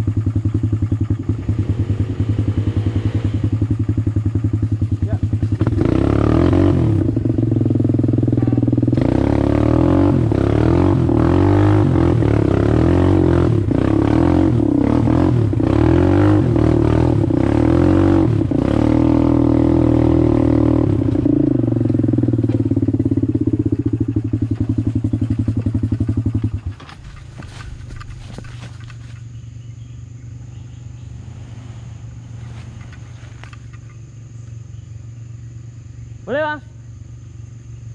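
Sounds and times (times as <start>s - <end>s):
engine idling: 0.0s - 18.7s, 20.7s - 31.4s
atv engine revving: 0.0s - 37.9s
clattering knocks from bumps: 26.6s - 29.2s.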